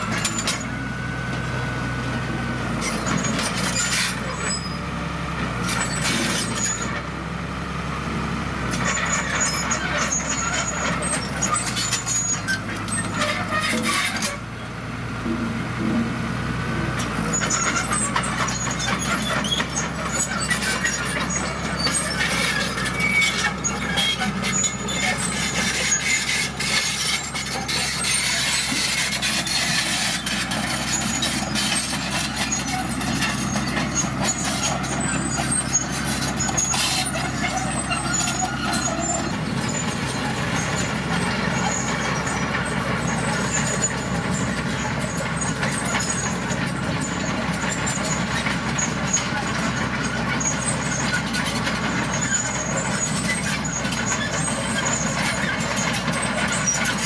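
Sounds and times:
bulldozer diesel engine running: 0.0 - 57.0
tracks and stones clanking: 17.0 - 57.0.

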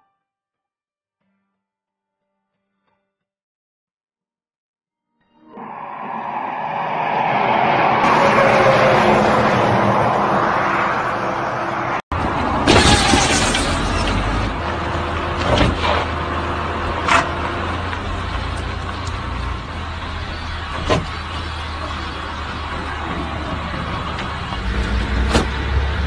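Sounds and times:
car engine revving: 5.6 - 12.0
traffic rumble: 5.6 - 26.0.

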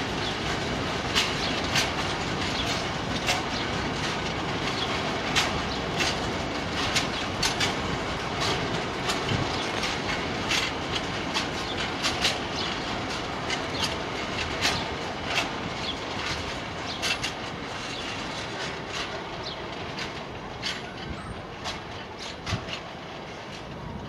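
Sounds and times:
freight train rumbling past: 0.0 - 24.0
wheel clicks on rails: 0.0 - 24.0.

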